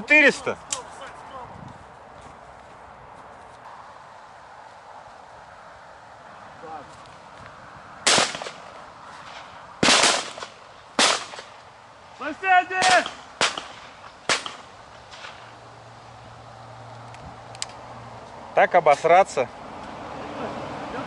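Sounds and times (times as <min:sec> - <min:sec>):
shotgun shots: 0:08.0 - 0:08.6, 0:09.8 - 0:11.6, 0:12.8 - 0:15.5
person shouting: 0:12.2 - 0:13.1.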